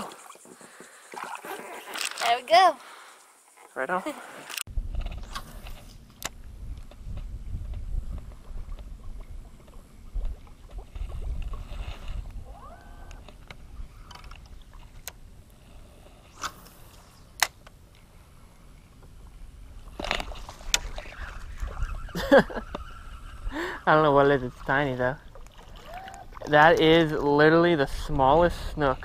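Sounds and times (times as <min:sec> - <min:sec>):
fish splashing: 0:00.0 - 0:02.3, 0:25.2 - 0:26.5
water lapping: 0:00.0 - 0:03.2, 0:08.1 - 0:15.0, 0:18.1 - 0:27.5
low wind rumble: 0:04.7 - 0:29.0.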